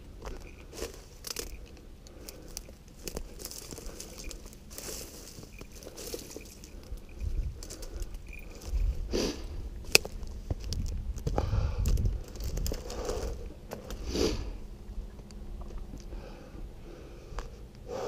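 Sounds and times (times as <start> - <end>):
footsteps crunching through dry brush: 0.0 - 16.2
soft breaths: 0.2 - 9.7, 16.0 - 18.0
wind rumble on microphone: 5.6 - 16.8.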